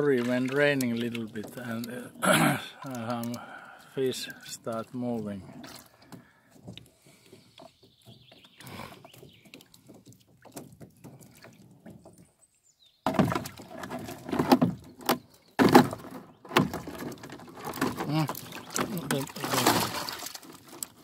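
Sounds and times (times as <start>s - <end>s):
fish trap clattering and knocking: 13.1s - 21.0s.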